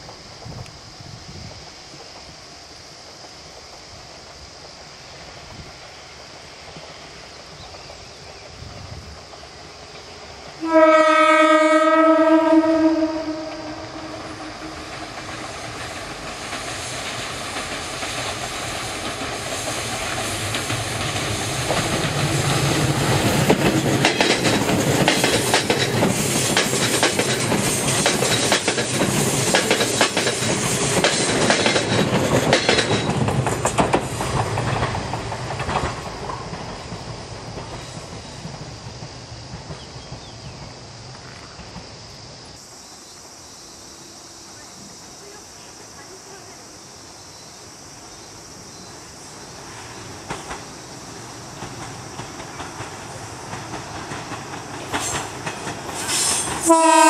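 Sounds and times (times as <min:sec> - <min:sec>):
electric train passing: 0:00.0 - 0:57.0
wheels clattering over rail joints: 0:14.0 - 0:40.8.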